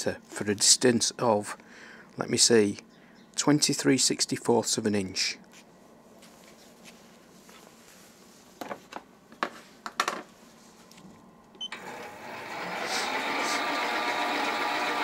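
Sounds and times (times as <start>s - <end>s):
lathe motor spinning up: 11.7s - 15.0s.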